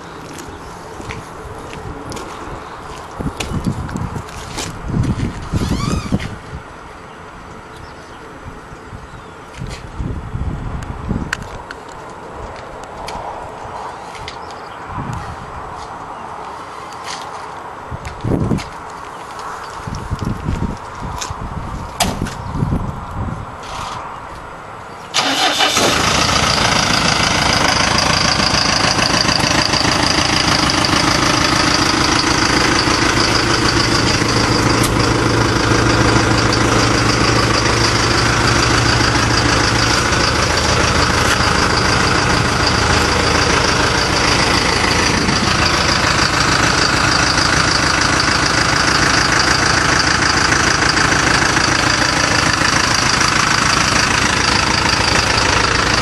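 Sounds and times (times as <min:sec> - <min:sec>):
truck engine starting and idling: 0:05.4 - 0:06.3, 0:25.1 - 0:56.0.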